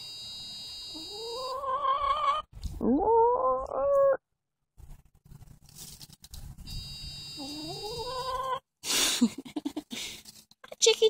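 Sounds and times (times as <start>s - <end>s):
hen calling: 7.4s - 8.6s.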